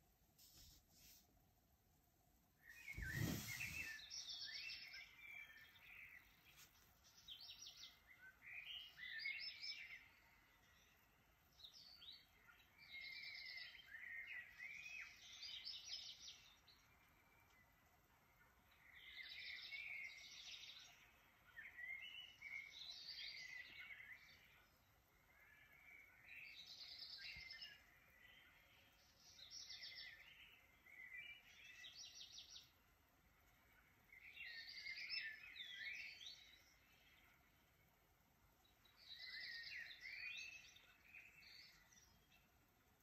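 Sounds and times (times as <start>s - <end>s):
birds chirping and trilling: 2.6s - 43.0s
short thump: 2.9s - 3.9s.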